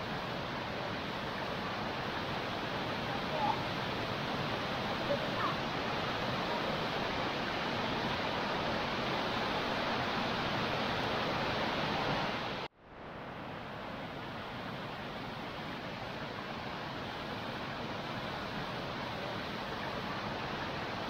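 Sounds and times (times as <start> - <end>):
waterfall rushing: 0.0 - 12.7.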